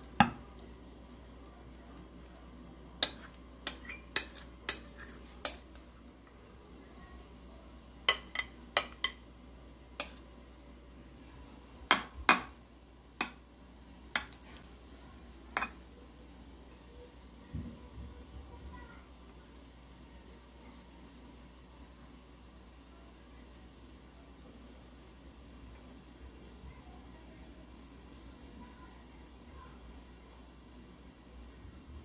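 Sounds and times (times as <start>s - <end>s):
soft stirring: 0.0s - 19.8s, 24.0s - 31.7s.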